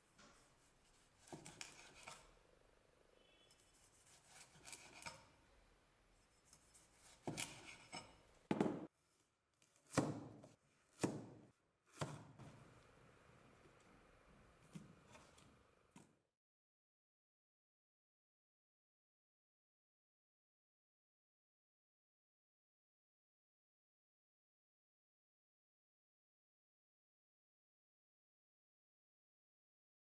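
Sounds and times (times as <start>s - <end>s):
cleaver cutting onto wooden board: 1.2s - 2.2s, 4.0s - 5.3s.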